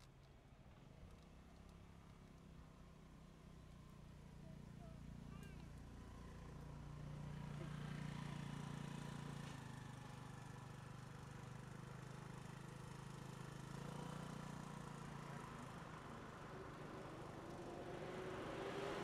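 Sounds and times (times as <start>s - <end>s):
vehicle engines droning: 12.2s - 19.0s.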